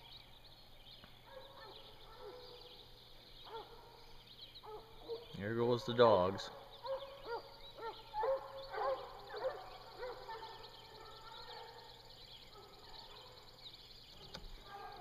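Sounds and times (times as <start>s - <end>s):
hounds baying: 1.3s - 2.7s, 3.4s - 4.0s, 4.6s - 5.4s, 6.4s - 13.5s.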